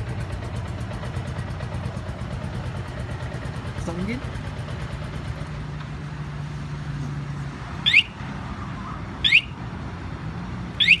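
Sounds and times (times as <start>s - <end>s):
motorcycle alarm siren chirps: 7.8s - 8.2s, 9.2s - 9.6s, 10.8s - 11.0s.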